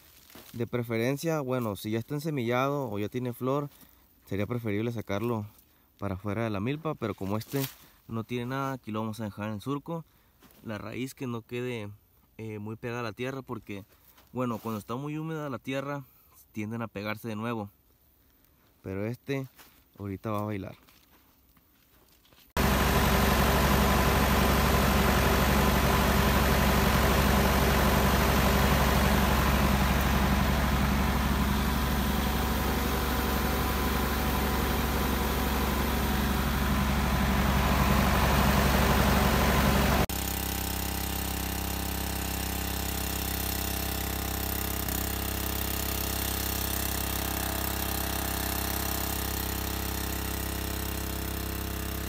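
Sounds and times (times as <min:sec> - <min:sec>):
tractor engine running: 0:22.6 - 0:52.0.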